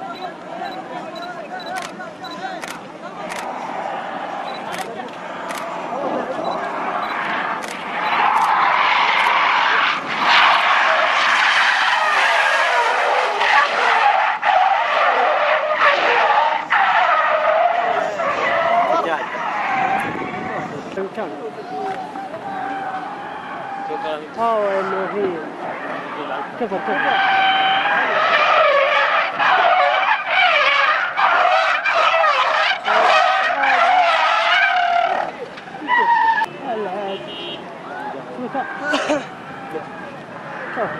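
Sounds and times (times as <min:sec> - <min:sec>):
car tyres squealing: 0:00.0 - 0:40.9.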